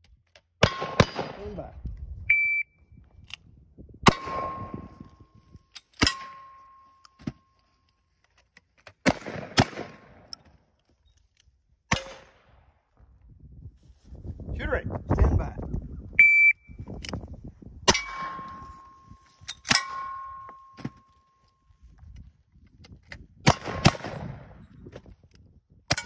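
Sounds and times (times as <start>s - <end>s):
gunshots: 0.6s - 1.6s, 9.0s - 10.3s, 23.5s - 24.5s
shot timer beep: 2.3s - 2.8s, 16.2s - 16.8s
steel targets ringing: 6.0s - 7.0s, 17.9s - 21.1s.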